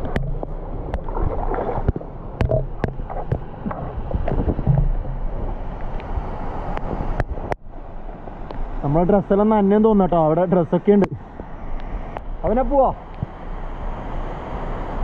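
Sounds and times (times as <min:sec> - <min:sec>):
water sloshing and splashing: 0:00.0 - 0:08.8.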